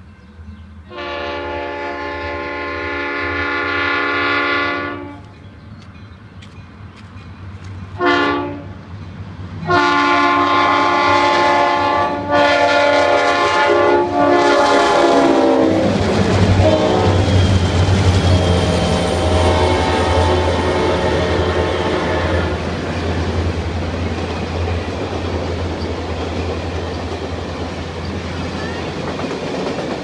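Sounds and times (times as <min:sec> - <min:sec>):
diesel locomotives rumbling: 0:00.0 - 0:30.0
locomotive horn blasts: 0:00.9 - 0:05.3, 0:08.0 - 0:08.8, 0:09.6 - 0:16.0, 0:16.6 - 0:17.4, 0:18.4 - 0:22.7.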